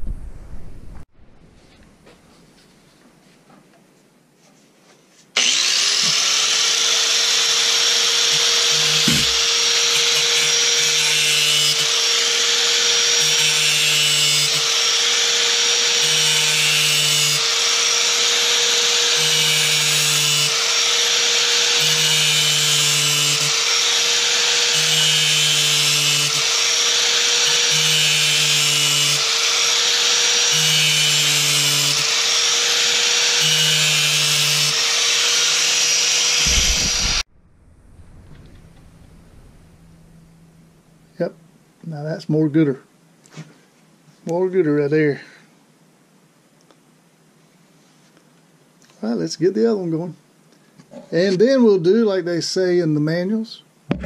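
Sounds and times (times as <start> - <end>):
angle grinder grinding steel: 5.4 - 40.7.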